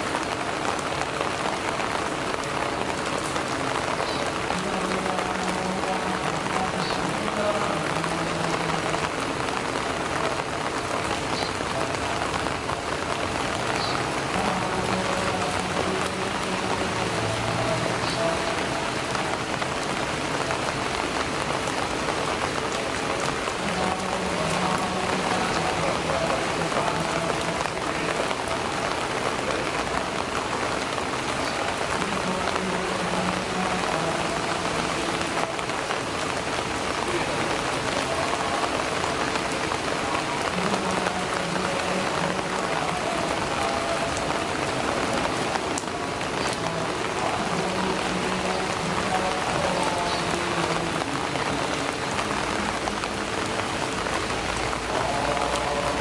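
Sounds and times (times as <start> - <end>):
rain pattering on leaves: 0.0 - 56.0.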